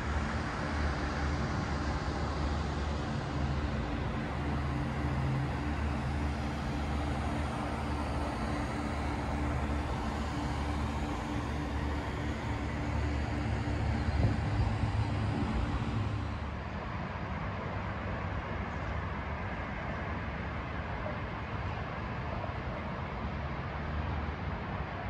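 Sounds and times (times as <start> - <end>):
low machine hum: 0.0 - 19.2
city background noise: 0.0 - 25.0.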